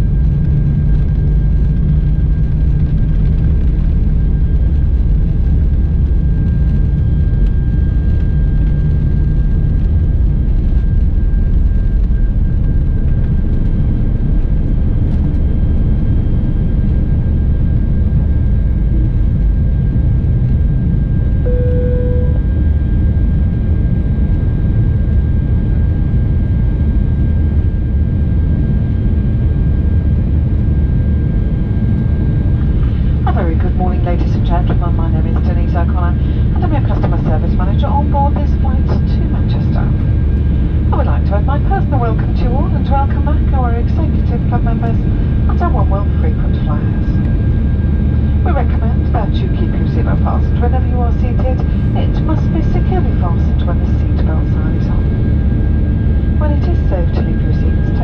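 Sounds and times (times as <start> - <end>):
deep runway rumble: 0.0 - 58.0
jet engines roaring with whine: 0.0 - 58.0
brief cabin tone: 21.4 - 22.9.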